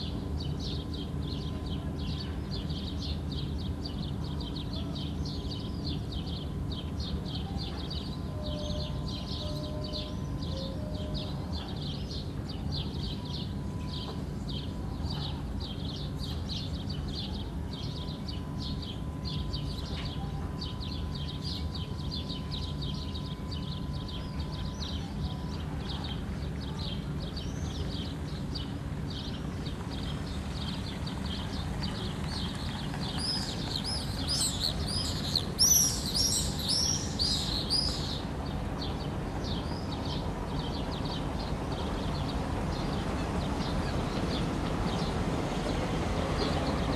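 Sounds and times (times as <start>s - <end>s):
small birds chirping: 0.0s - 46.9s.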